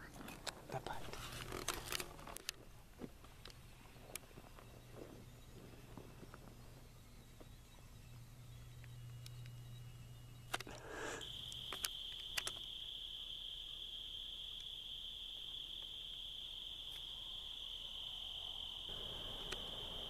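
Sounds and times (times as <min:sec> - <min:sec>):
cricket trilling: 0:03.3 - 0:20.0
sharp clicks: 0:10.5 - 0:12.7, 0:19.4 - 0:19.8.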